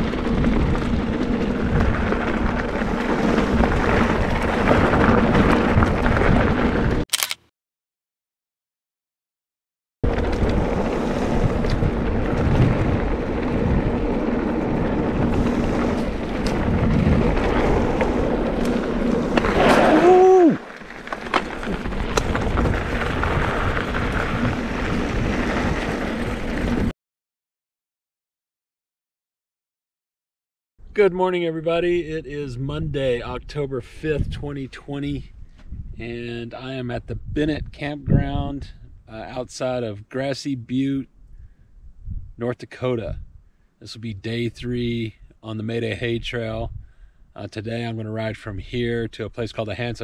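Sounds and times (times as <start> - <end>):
bike tyre and trail rumble: 0.0 - 7.0, 10.0 - 26.9, 30.8 - 39.8, 41.1 - 50.0
wind buffeting microphone: 0.0 - 7.0, 10.0 - 20.6, 21.5 - 26.9, 31.8 - 39.1, 41.2 - 42.4, 43.0 - 43.5, 46.0 - 47.4.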